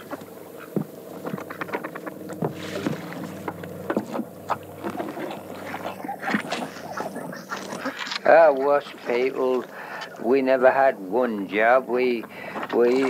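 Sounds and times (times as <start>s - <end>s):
boots thumping on wooden boat: 0.0s - 6.7s
water movement: 0.0s - 13.0s.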